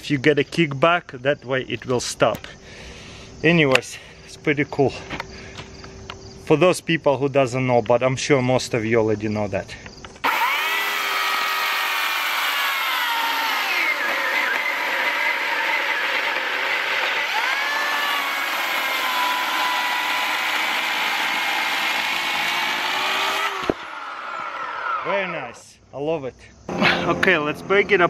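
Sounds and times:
electric chainsaw cutting log: 0:10.2 - 0:25.6.

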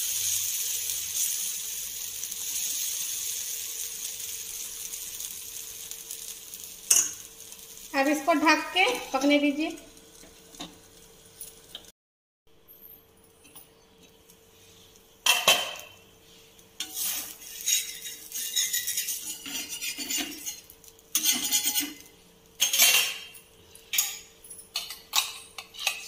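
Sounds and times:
metal spatula scraping iron pan: 0:16.8 - 0:23.2.

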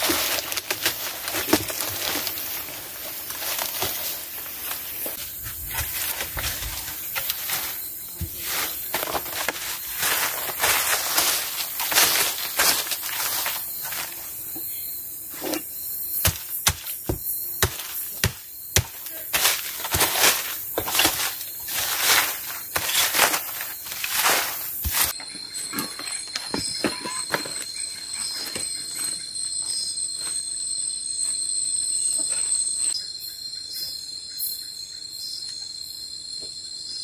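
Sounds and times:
cardboard and leaves rustling: 0:00.0 - 0:25.2
insect chirring: 0:00.0 - 0:37.0.

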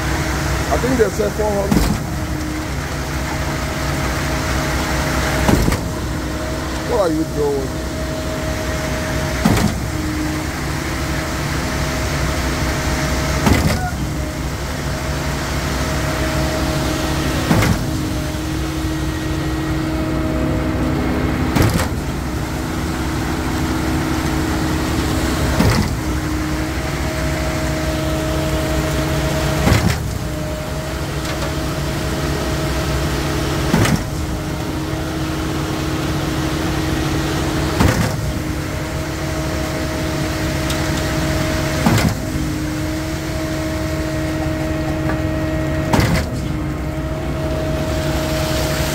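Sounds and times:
pump engine and hydraulics running: 0:00.0 - 0:48.9
sharp clunk of pump: 0:13.4 - 0:14.0, 0:37.8 - 0:38.2, 0:45.9 - 0:46.5.

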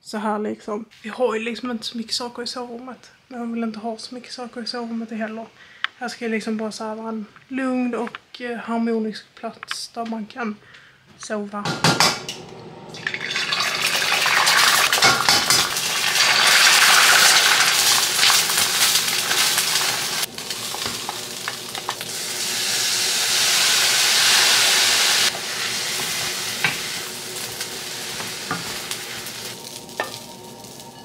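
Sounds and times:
food sizzling in frying pan: 0:12.0 - 0:31.0
spatula scraping and tapping pan: 0:15.0 - 0:15.8, 0:25.9 - 0:27.6, 0:28.2 - 0:31.0.

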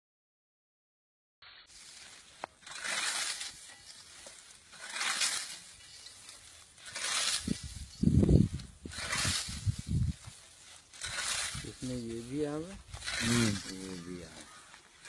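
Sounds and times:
scythe swishing through wheat: 0:01.4 - 0:14.7.

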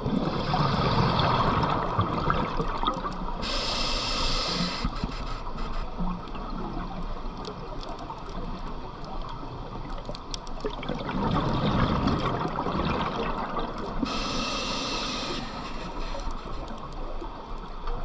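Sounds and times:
exhaled bubbles gushing: 0:00.0 - 0:03.4, 0:10.6 - 0:14.1
faint underwater clicks and crackles: 0:00.0 - 0:18.0
diver breathing through regulator: 0:03.4 - 0:06.0, 0:14.0 - 0:16.7.

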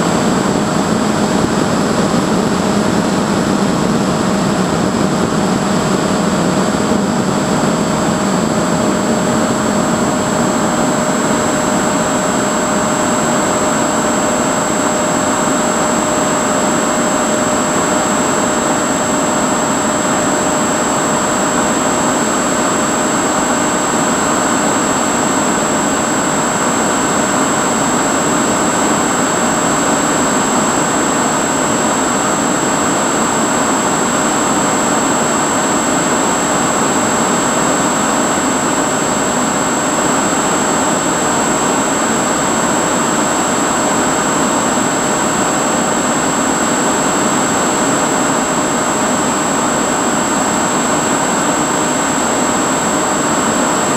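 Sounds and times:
electric motor and propeller whine: 0:00.0 - 0:53.9.

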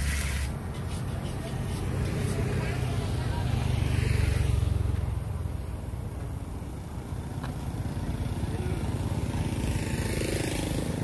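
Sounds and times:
motorbike engine passing: 0:01.6 - 0:06.1, 0:06.7 - 0:11.0.

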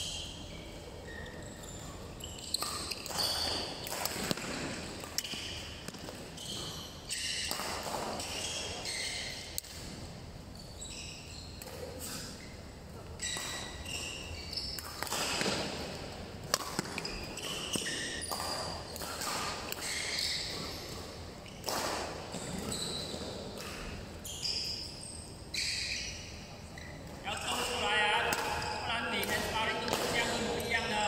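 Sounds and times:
shoes squeaking on sports floor: 0:00.0 - 0:31.0
racket hitting shuttlecock: 0:02.4 - 0:08.7, 0:13.2 - 0:21.0, 0:21.6 - 0:24.0, 0:27.4 - 0:30.8.

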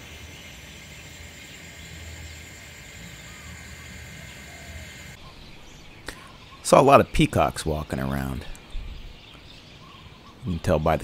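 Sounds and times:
high-pitched drone: 0:00.0 - 0:05.2.

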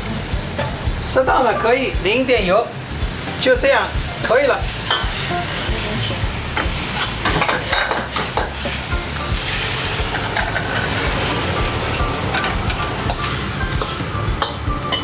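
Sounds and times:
food sizzling in a wok: 0:00.0 - 0:15.0
metal ladle clacking and scraping: 0:04.2 - 0:08.8, 0:10.1 - 0:11.2, 0:12.2 - 0:15.0.

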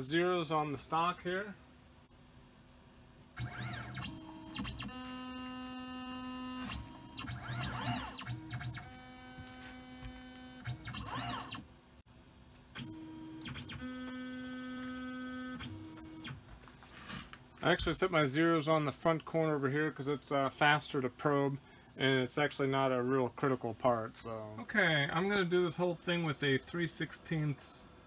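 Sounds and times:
stepper motors whining: 0:03.4 - 0:11.6.

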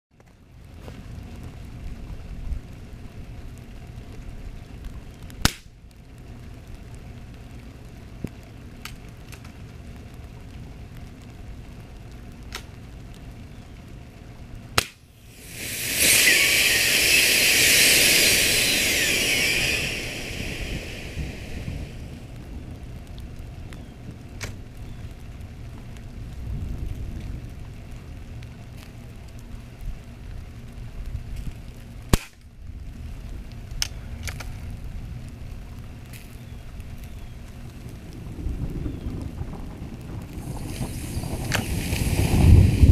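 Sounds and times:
pellet gun cracks: 0:05.4 - 0:05.7, 0:14.8 - 0:15.0, 0:32.1 - 0:32.4
battery venting with fizzing hiss: 0:14.8 - 0:24.9, 0:40.2 - 0:42.9.

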